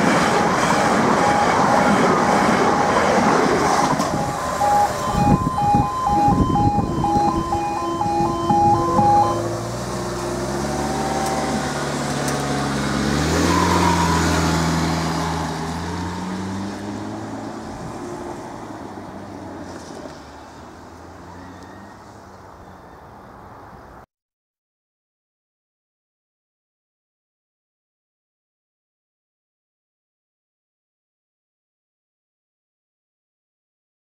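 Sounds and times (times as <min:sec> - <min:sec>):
vehicle engine pulling away: 0:00.7 - 0:23.0.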